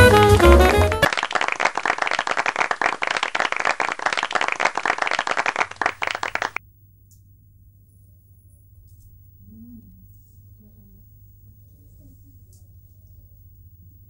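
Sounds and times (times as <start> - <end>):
applause: 0.0 - 6.6
faint low hum: 5.9 - 14.0.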